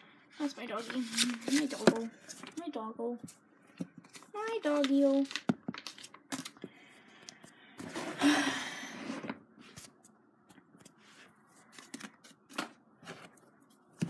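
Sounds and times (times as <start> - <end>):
rustling handling noise: 0.4 - 6.7.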